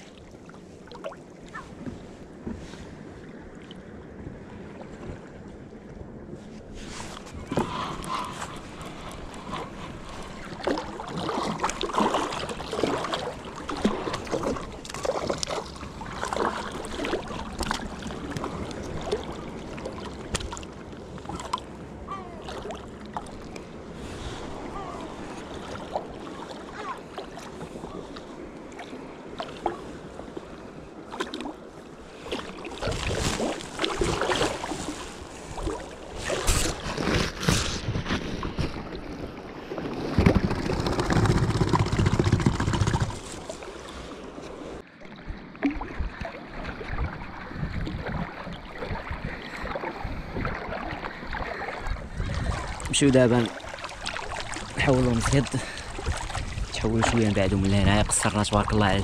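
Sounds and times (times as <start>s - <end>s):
water splashing and lapping: 0.0s - 59.0s
wind on microphone: 44.7s - 59.0s.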